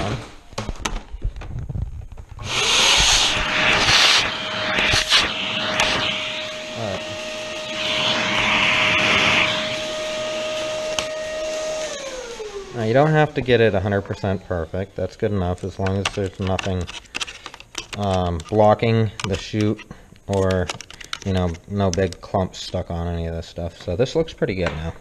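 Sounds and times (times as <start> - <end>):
vacuum cleaner whine: 2.4 - 14.8
handling clicks and knocks: 15.5 - 22.8.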